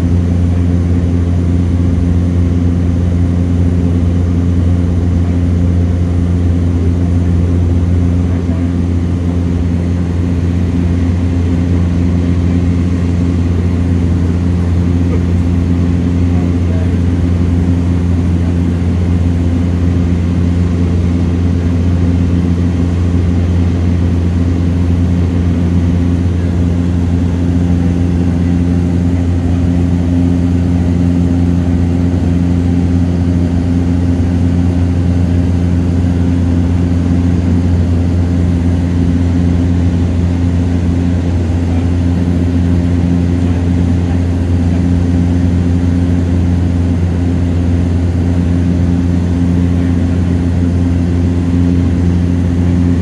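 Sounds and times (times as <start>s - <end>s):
turboprop engine drone: 0.0s - 53.0s.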